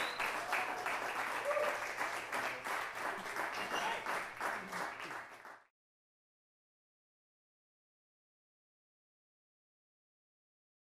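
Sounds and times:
audience applauding: 0:00.0 - 0:05.7.

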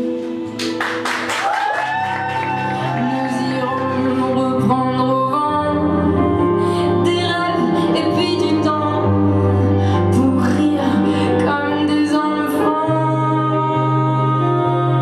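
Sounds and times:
woman singing: 0:03.0 - 0:15.0.

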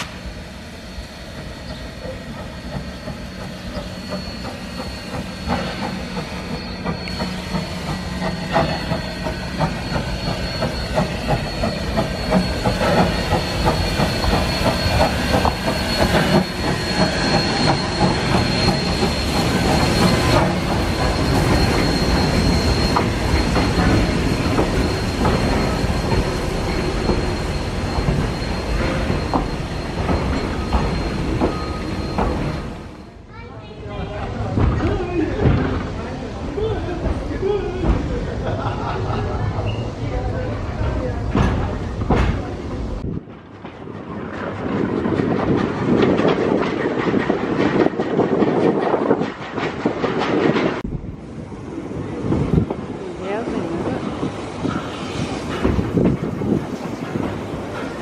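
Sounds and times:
thin steady wheel squeal: 0:00.8 - 0:33.2, 0:38.6 - 0:43.0.

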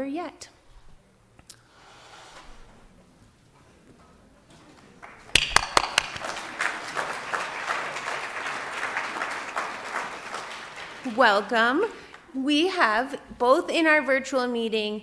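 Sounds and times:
audience applause: 0:04.6 - 0:12.3
close sharp claps: 0:04.7 - 0:12.3.

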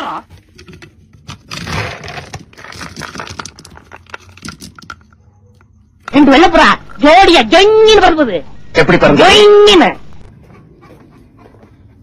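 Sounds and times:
kibble rattling in plastic bin: 0:01.5 - 0:05.0.

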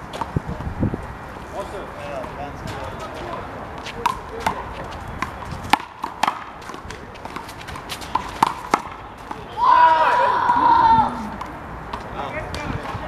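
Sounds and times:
handball hitting concrete wall: 0:04.0 - 0:09.4.

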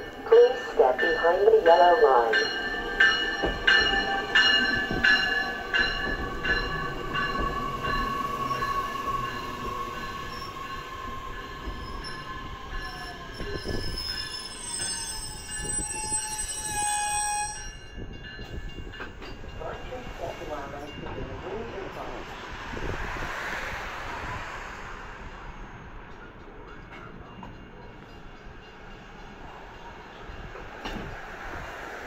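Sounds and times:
wheel and brake squeal: 0:07.4 - 0:17.7.

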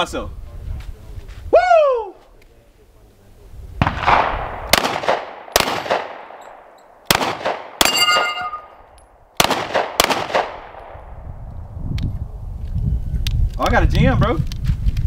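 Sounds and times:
pistol shots: 0:03.8 - 0:08.6, 0:09.4 - 0:11.0
bullet hitting steel plate ringing: 0:07.8 - 0:08.8.

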